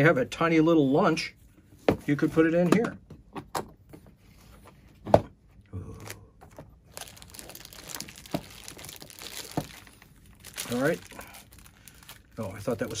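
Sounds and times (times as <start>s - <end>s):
plastic bag crinkling: 6.9s - 13.0s.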